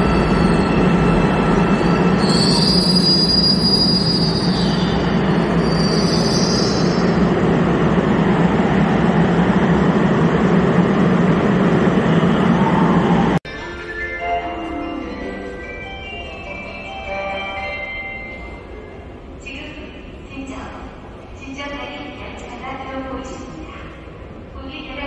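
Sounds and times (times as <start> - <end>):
high squeal: 0.0 - 7.2.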